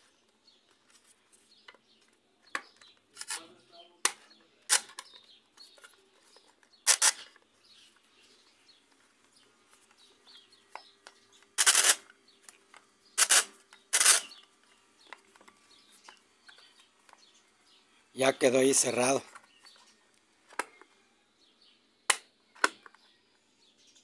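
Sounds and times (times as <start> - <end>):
plastic housing clicks and clatter: 22.1 - 23.0.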